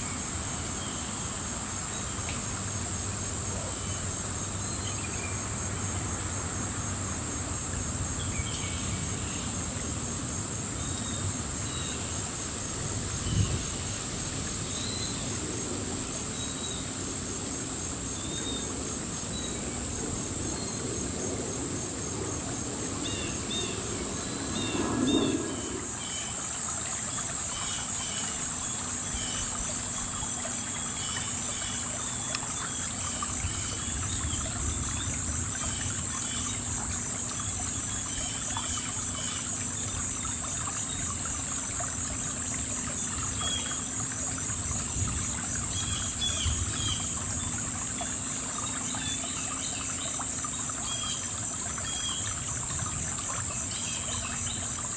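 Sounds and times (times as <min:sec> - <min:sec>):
crickets trilling: 0:00.0 - 0:54.9
low rumble: 0:23.7 - 0:26.0
water trickling over stones: 0:25.8 - 0:54.9.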